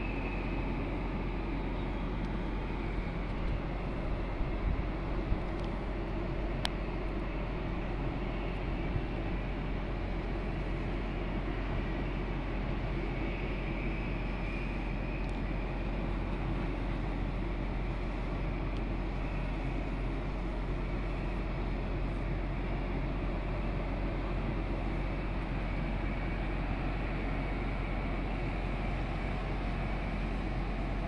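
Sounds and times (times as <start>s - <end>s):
outdoor rumble and hiss: 0.0s - 31.0s
faint click: 5.6s - 5.8s.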